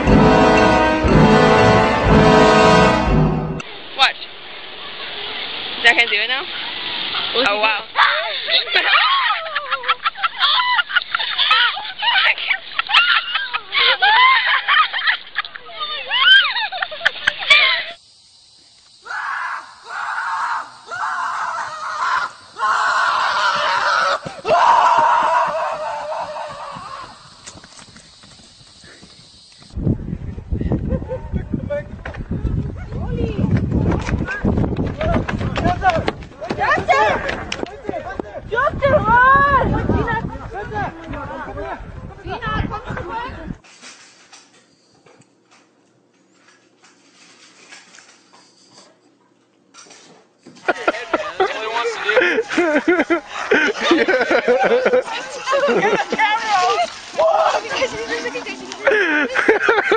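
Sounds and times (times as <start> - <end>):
person screaming: 19.0 - 27.1.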